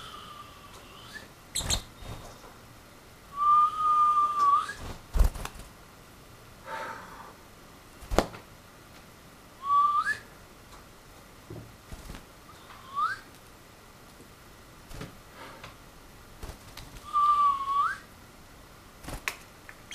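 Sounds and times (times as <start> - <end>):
person whistling: 3.4 - 4.8, 9.6 - 10.3, 12.8 - 13.3, 17.1 - 18.0.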